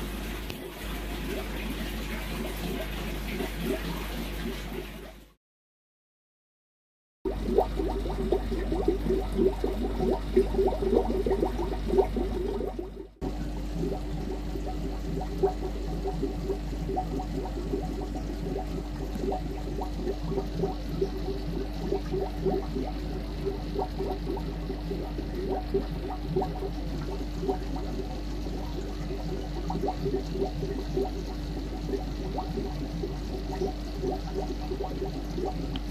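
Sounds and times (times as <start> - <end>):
aquarium water bubbling: 0.0 - 5.4, 7.3 - 35.9
steady low hum: 7.3 - 35.9.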